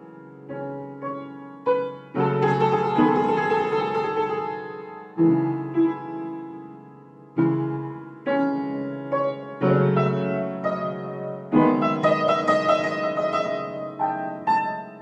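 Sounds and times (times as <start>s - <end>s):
piano playing slow chords: 0.0s - 15.0s.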